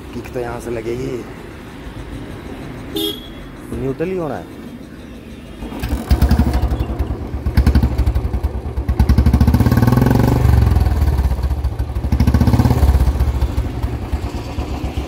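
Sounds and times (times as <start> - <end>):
motorcycle kick start: 5.6 - 10.0
motorcycle engine revving: 5.6 - 15.0.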